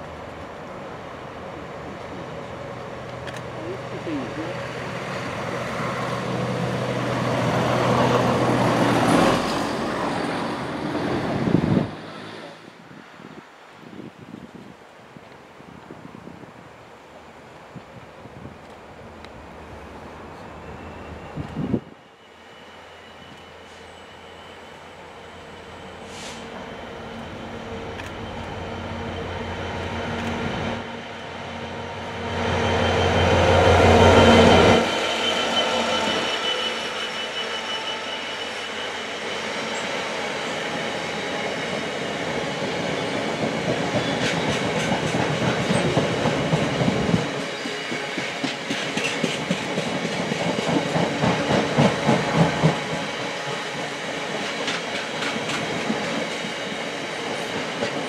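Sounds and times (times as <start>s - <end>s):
thin wheel squeal: 34.9s - 39.8s
train clattering over rail joints: 43.4s - 53.1s, 53.7s - 58.0s.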